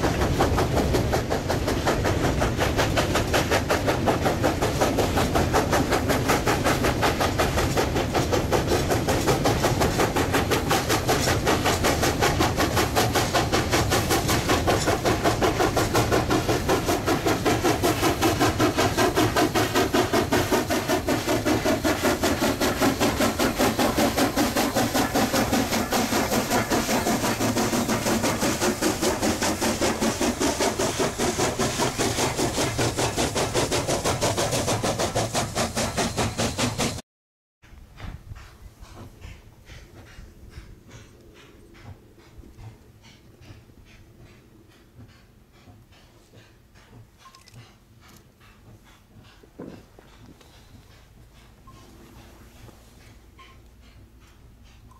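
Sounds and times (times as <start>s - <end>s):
steam train running: 0.0s - 37.0s, 37.6s - 54.9s.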